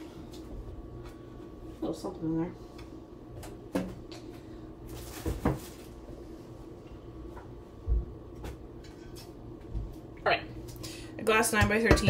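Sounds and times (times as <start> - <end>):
cupboard door knocking: 11.6 - 12.0.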